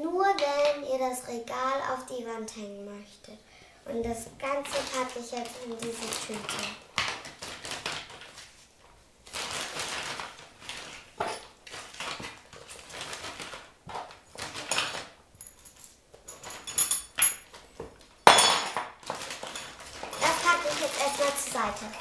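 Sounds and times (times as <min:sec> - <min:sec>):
plastic bag crinkling: 0:04.4 - 0:15.2, 0:17.4 - 0:22.0.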